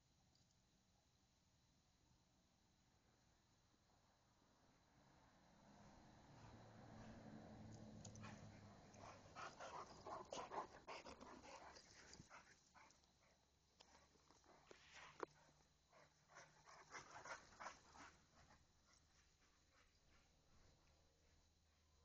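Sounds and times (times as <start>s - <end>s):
dogs playing: 6.3s - 20.9s.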